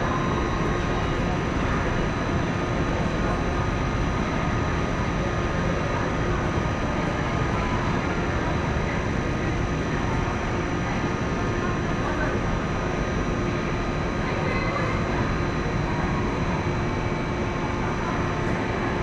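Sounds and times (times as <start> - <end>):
station rumble and hiss: 0.0 - 19.0.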